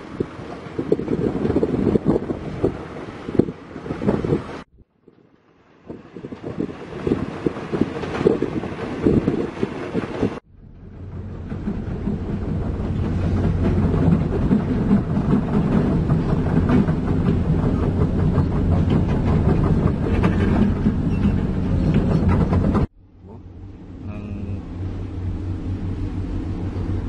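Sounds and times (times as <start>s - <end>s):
diesel engine rumbling: 10.4s - 27.0s
metallic clatter of crawler tracks: 10.8s - 22.9s.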